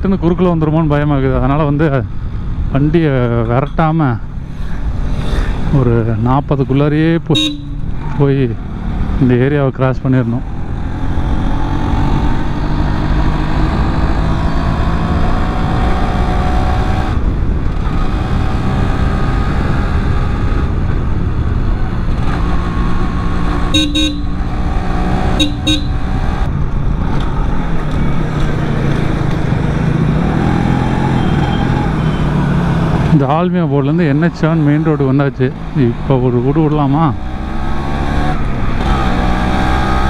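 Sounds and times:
horn honks: 7.3s - 8.0s, 23.7s - 24.5s, 25.3s - 26.2s
motorcycle engine accelerating: 7.4s - 9.6s, 10.2s - 33.2s, 33.9s - 40.0s.

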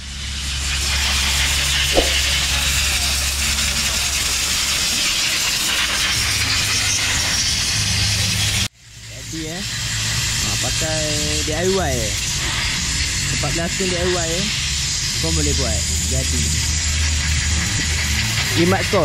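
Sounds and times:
steady hissing noise: 0.0s - 6.7s, 7.5s - 19.0s
low hum: 1.8s - 2.9s
sharp clink: 1.9s - 2.4s.

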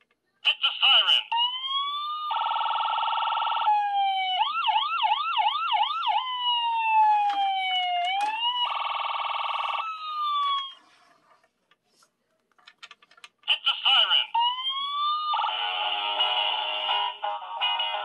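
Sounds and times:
toy electronic siren: 1.7s - 10.8s.

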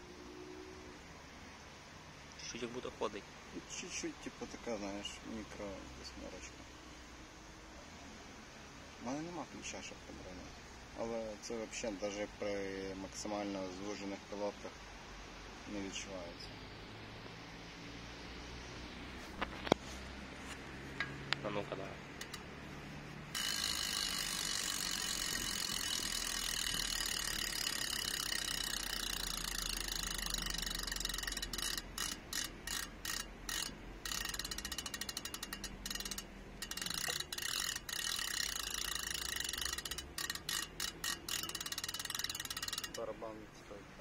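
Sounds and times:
bicycle freehub ratcheting buzz: 22.2s - 22.5s, 23.3s - 43.1s.

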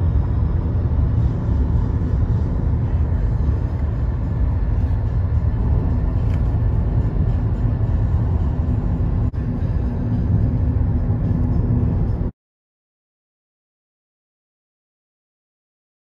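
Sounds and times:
road and engine rumble in car: 0.0s - 12.3s.

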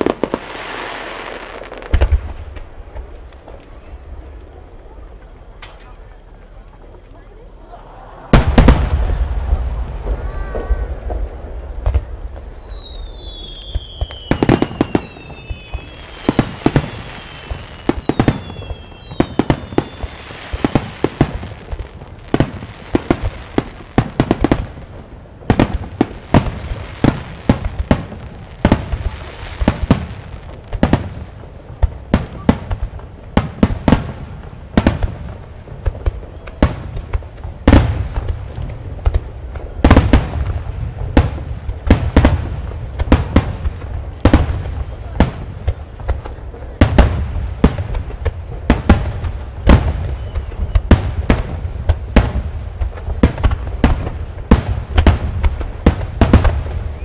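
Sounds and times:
echoing booms: 0.0s - 5.8s, 8.3s - 57.0s
fireworks bursts and bangs: 0.0s - 57.0s
falling firework whistles: 8.0s - 24.3s, 48.8s - 52.4s, 53.2s - 57.0s.

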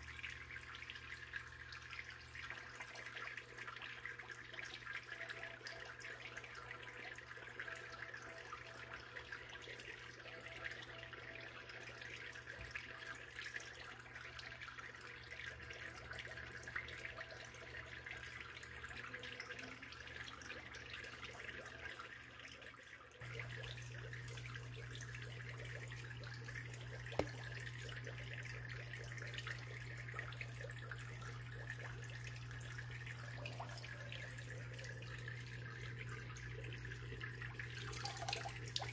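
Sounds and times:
water trickling and bubbling: 0.0s - 38.9s.

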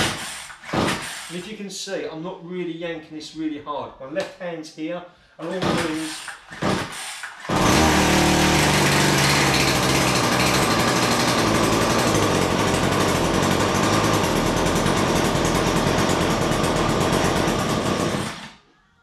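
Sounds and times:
strimmer engine starting and running: 5.7s - 18.6s
recoil starter pull: 5.8s - 18.6s.

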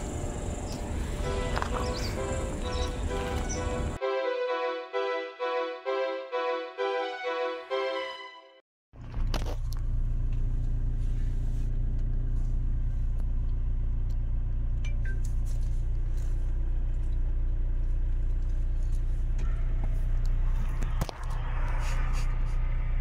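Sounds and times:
engine and road rumble: 0.0s - 4.0s, 8.9s - 23.0s.

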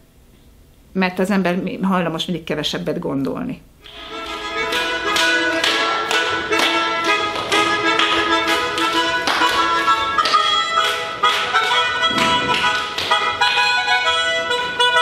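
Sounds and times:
held melody notes: 3.8s - 15.0s
beat of sharp struck notes: 3.9s - 15.0s.

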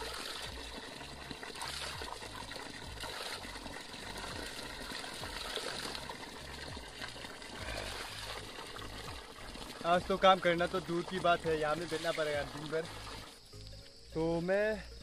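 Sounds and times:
water splashing on mouth: 0.0s - 9.9s
water pouring from spout: 0.0s - 13.8s.

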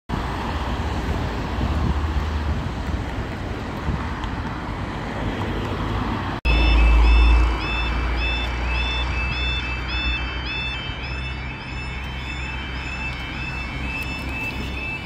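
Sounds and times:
cars passing: 0.1s - 15.0s
level crossing warning alarm: 6.5s - 15.0s.

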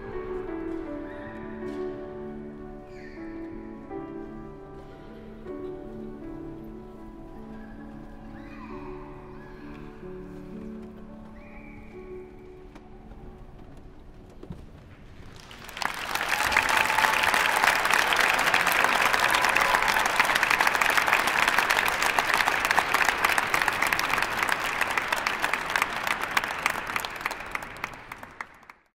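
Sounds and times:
audience applause: 15.2s - 28.9s.

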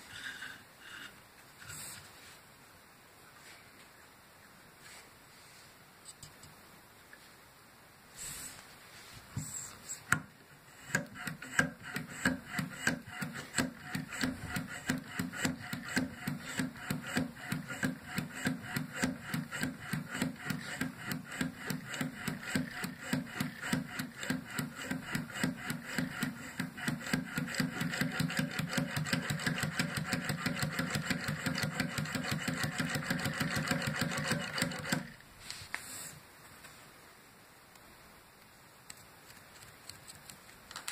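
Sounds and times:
blade scraping reed cane: 0.0s - 2.1s.

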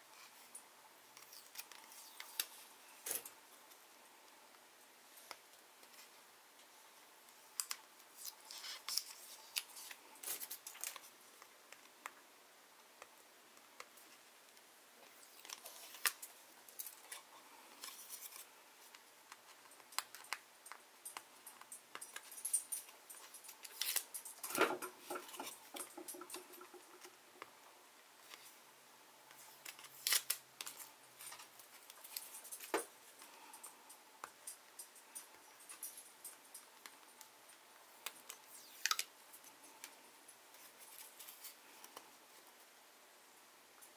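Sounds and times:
paper backing peeling off acrylic: 29.4s - 31.5s.

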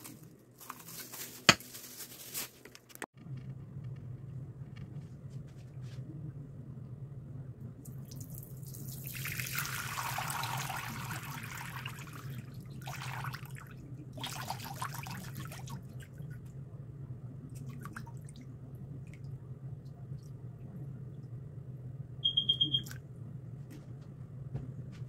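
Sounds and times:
low steady hum: 0.0s - 25.0s
liquid pouring through strainer: 8.1s - 13.6s.

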